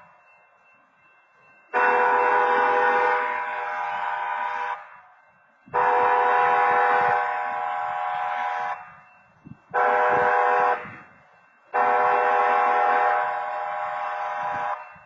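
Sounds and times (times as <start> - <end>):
wayside horn blasts: 1.7 - 5.0, 5.7 - 9.1, 9.7 - 11.1, 11.7 - 15.0.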